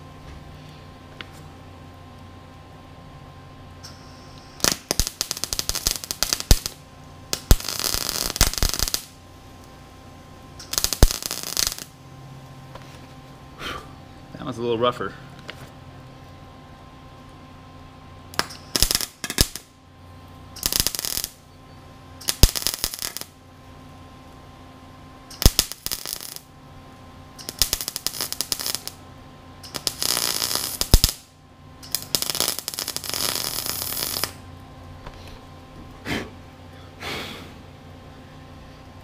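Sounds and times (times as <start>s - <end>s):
faint steady hum: 0.0s - 39.0s
welder crackling: 3.7s - 12.6s, 18.3s - 19.8s, 20.5s - 21.5s, 22.1s - 35.2s.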